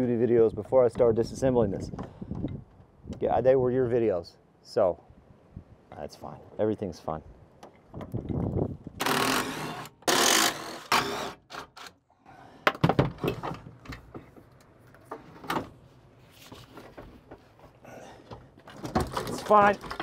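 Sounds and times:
hand tools clicking and knocking: 18.2s - 20.0s.

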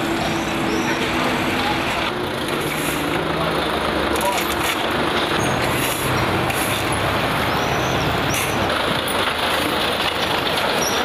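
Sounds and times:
truck engine idling: 0.1s - 11.0s.

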